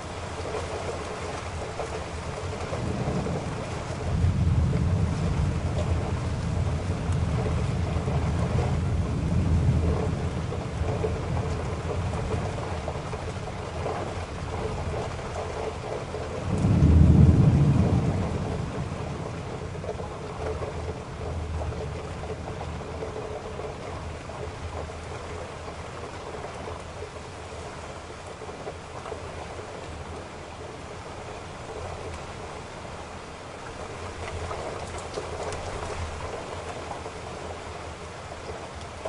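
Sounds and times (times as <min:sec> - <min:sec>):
rain: 0:00.0 - 0:39.0
deep rumble: 0:16.4 - 0:23.6.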